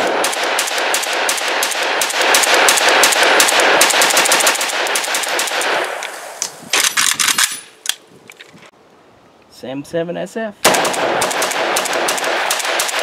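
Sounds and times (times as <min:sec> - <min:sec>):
rifle shots echoing: 0:00.0 - 0:07.7, 0:10.6 - 0:13.0.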